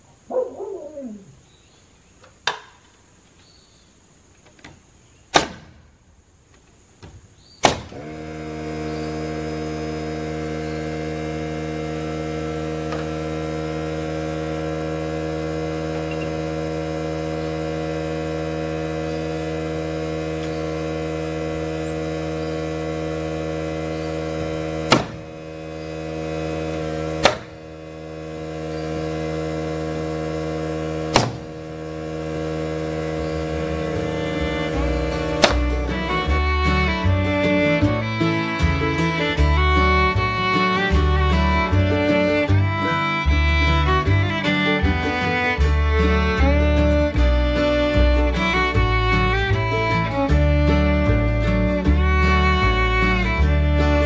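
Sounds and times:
pneumatic nail gun shots: 4.6s - 6.0s, 7.0s - 8.1s, 24.8s - 25.4s, 27.1s - 27.6s, 31.1s - 31.6s, 35.4s - 35.6s
air compressor motor humming: 7.6s - 54.0s.

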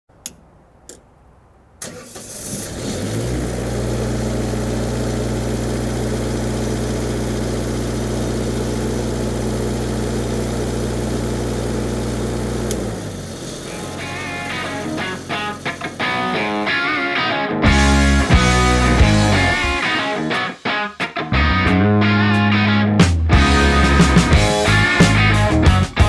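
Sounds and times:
welding machine engine running: 3.8s - 16.7s
guitar music: 13.6s - 26.0s.

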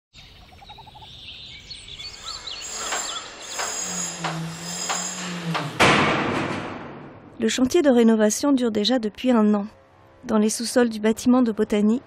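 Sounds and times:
bird-like chirps: 0.2s - 3.8s
knocks: 2.9s - 7.4s.

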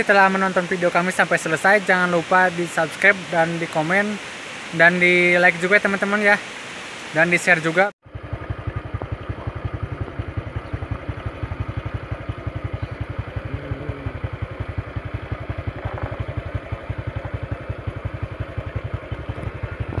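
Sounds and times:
small engine idling: 8.0s - 20.0s.

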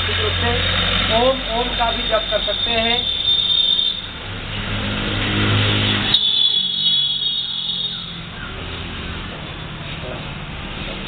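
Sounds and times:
vehicle engine running: 0.0s - 6.2s.

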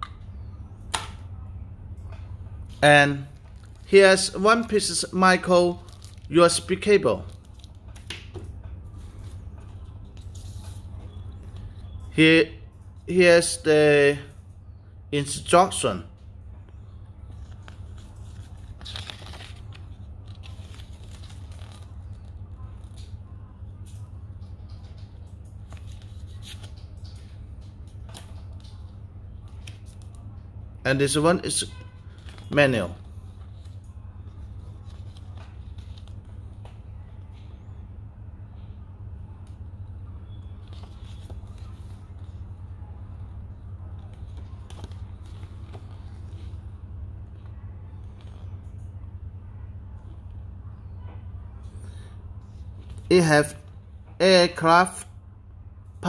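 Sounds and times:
steady low hum: 0.0s - 56.0s
paper leaflet rustling: 17.3s - 23.2s, 25.0s - 27.4s, 34.3s - 36.8s, 40.6s - 42.7s.

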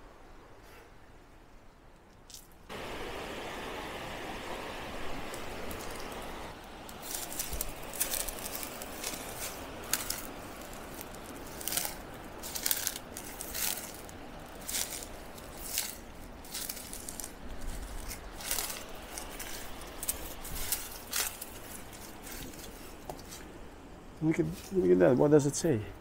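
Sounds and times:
crunching footsteps: 5.3s - 23.5s.

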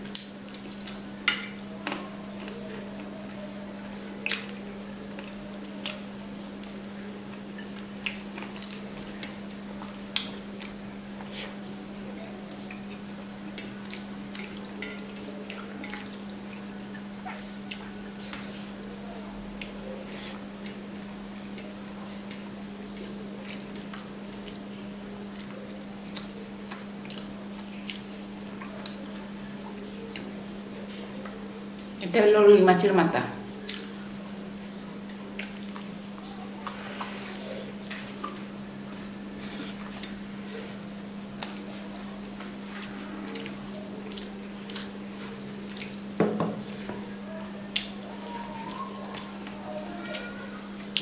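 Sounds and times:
chewing: 0.0s - 32.0s, 33.6s - 51.0s
wet squishing of rice: 4.0s - 11.6s, 34.6s - 46.1s.

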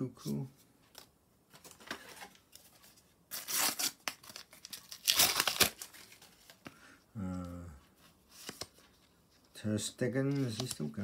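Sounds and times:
wrapper crinkling: 2.0s - 6.6s
wrapper ripping: 3.3s - 6.2s.

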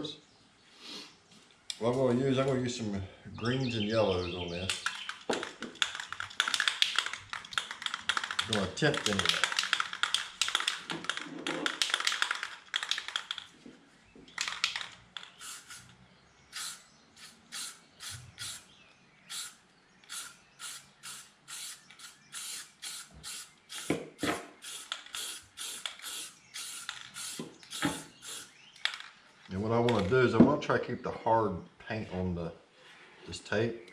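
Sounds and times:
spray paint puffs: 4.7s - 13.4s, 14.4s - 18.7s, 19.3s - 29.1s
spray can ball rattling: 4.7s - 13.5s, 14.3s - 18.6s, 19.3s - 29.2s.

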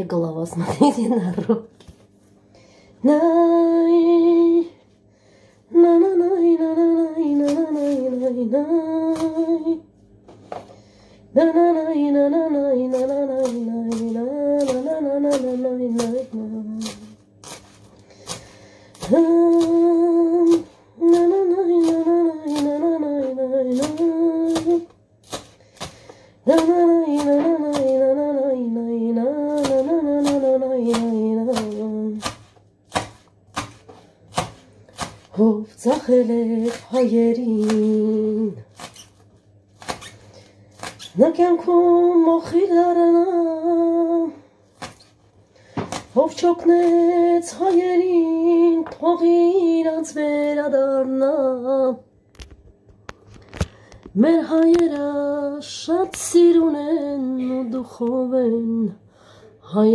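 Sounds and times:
knife chopping on cutting board: 29.6s - 35.4s.

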